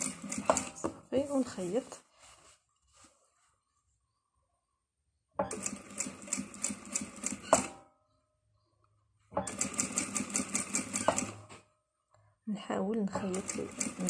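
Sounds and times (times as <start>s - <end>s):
sewing machine stitching: 0.0s - 0.8s, 5.5s - 7.8s, 9.4s - 11.5s, 13.2s - 14.0s.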